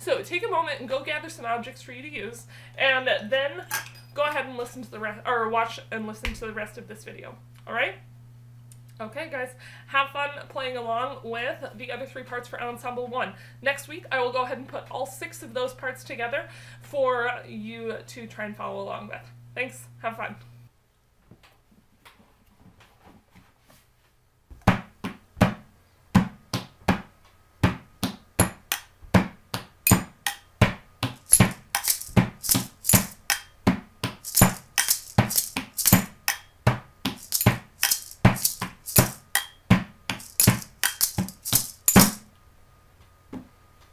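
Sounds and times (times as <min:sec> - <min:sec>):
maraca shaking: 0:31.2 - 0:33.5, 0:34.2 - 0:36.4, 0:37.1 - 0:39.5, 0:40.1 - 0:42.2.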